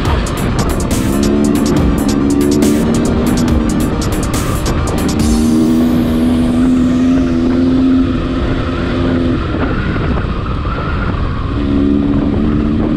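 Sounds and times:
dirt bike engine: 0.0s - 10.2s.

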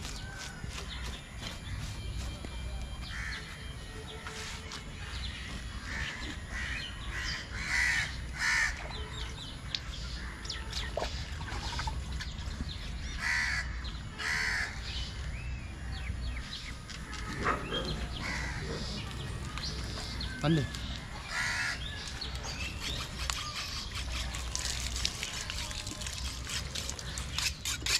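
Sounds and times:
crows cawing: 3.1s - 3.5s, 5.8s - 8.8s, 13.2s - 14.8s, 18.1s - 19.0s, 21.2s - 21.9s.

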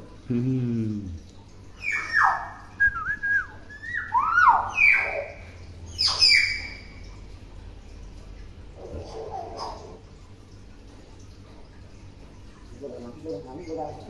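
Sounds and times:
myna bird whistling: 1.8s - 6.9s.

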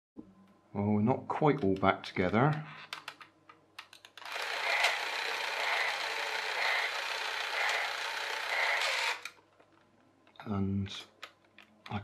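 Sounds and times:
toy train motor whirring: 4.2s - 9.4s.

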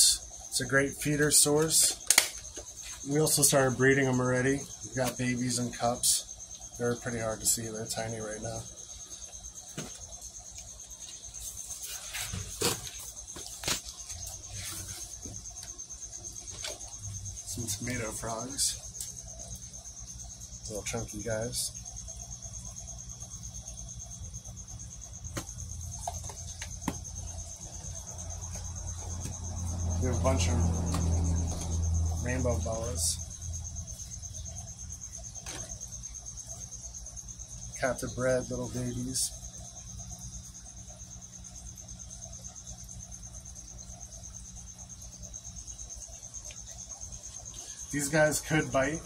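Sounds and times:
cricket chirping: 0.0s - 49.0s.

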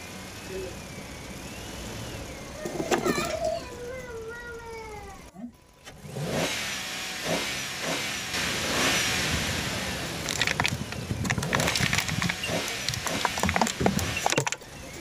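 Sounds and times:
car engine running: 0.0s - 15.0s
candy shells cracking: 10.2s - 14.4s.

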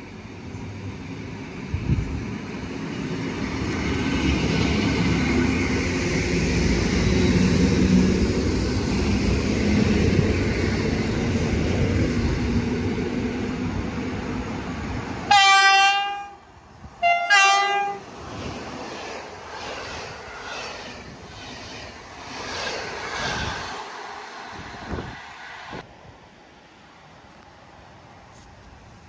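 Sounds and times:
electric train rumbling with whine: 0.0s - 25.9s
locomotive horn blasts: 15.3s - 16.4s, 17.0s - 18.0s.

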